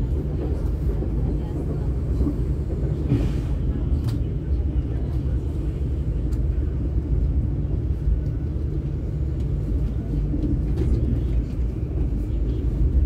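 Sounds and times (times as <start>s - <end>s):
train rumbling along track: 0.0s - 13.0s
faint clicks: 4.0s - 4.2s.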